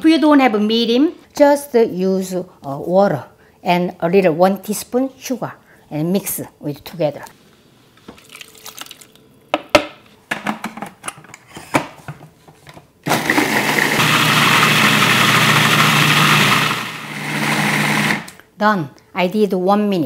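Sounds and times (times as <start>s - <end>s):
food processor motor running: 13.1s - 18.4s.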